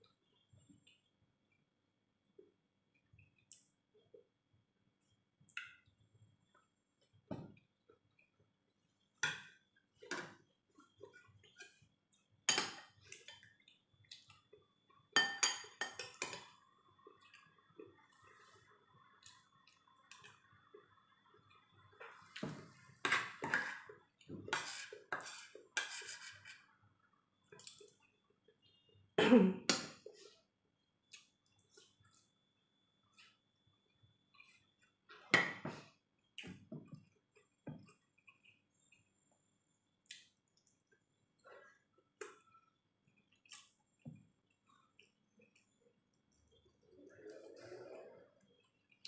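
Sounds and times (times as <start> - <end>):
metal spoon clinking on ceramic: 15.2 - 16.4.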